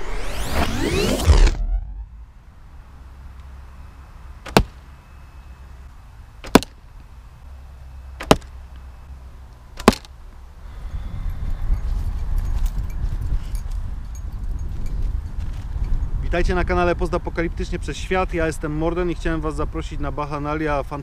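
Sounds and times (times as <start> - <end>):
arrow flight rush: 0.0 - 2.3
low steady rumble: 0.9 - 20.4
arrows thudding into target: 4.4 - 4.9, 6.4 - 6.8, 8.2 - 8.6, 9.8 - 10.2.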